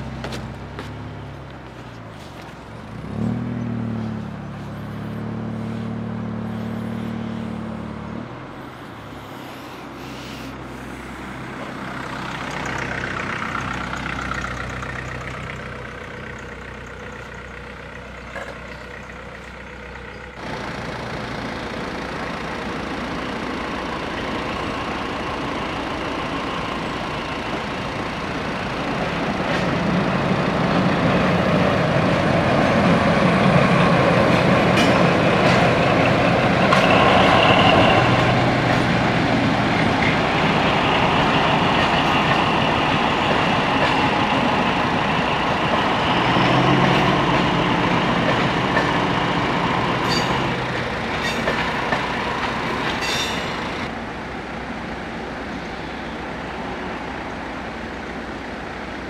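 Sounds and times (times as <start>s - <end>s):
road vehicles idling: 0.0s - 59.0s
train rumble: 0.0s - 59.0s
wheels clattering on rails: 11.5s - 54.1s.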